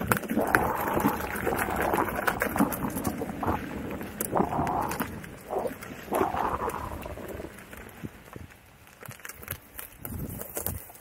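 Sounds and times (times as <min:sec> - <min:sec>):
tyre crunching over dirt and twigs: 0:02.2 - 0:11.0.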